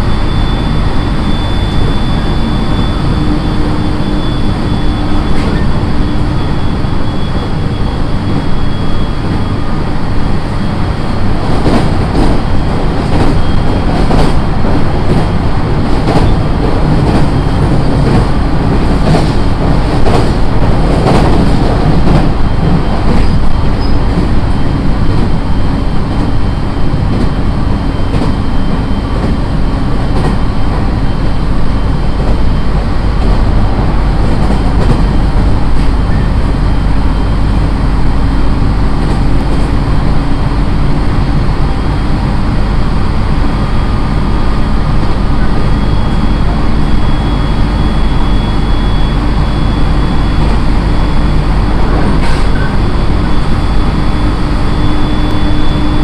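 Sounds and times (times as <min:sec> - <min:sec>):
train wheels and motors rumbling: 0:00.0 - 0:56.0.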